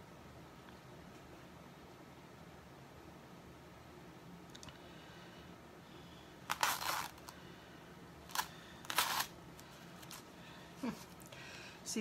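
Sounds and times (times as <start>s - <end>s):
plastic sheet crinkling: 6.5s - 7.4s, 8.3s - 10.3s.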